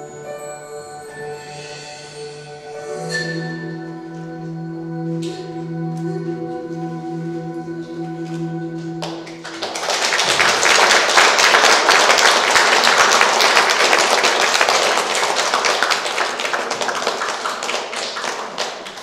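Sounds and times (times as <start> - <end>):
music: 0.0 - 19.0
audience applauding: 9.0 - 19.0.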